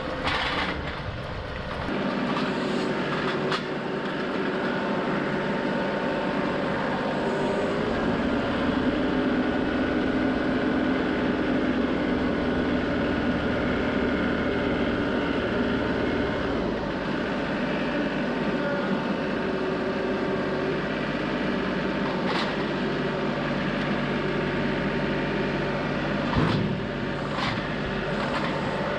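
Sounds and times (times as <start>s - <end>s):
tractor diesel engine running: 0.0s - 28.9s.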